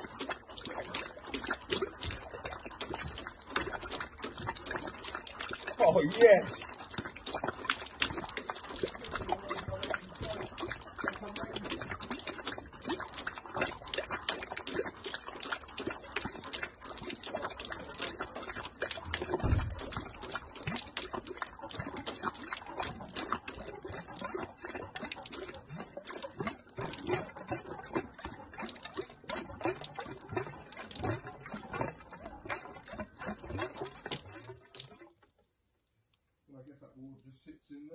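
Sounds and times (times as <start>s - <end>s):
water gushing onto ground: 0.0s - 35.6s.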